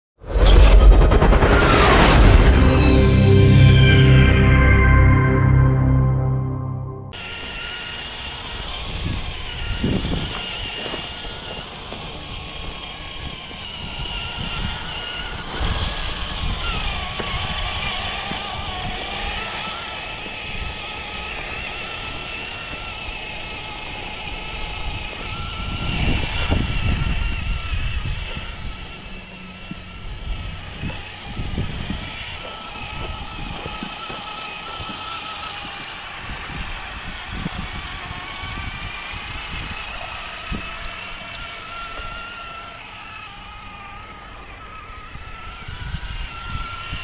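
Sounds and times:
electric motor and gearbox whine: 7.2s - 47.0s.

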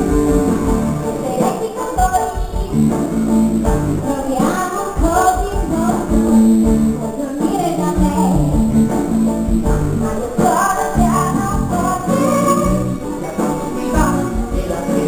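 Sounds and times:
acoustic guitar: 0.0s - 15.0s
person singing: 1.0s - 15.0s.

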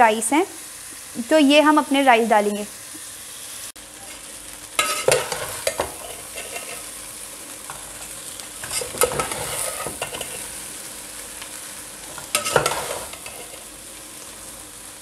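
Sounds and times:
frying sizzle: 0.0s - 15.0s
metal spoon scraping a pot: 4.8s - 6.9s, 8.6s - 10.5s, 12.2s - 13.7s.

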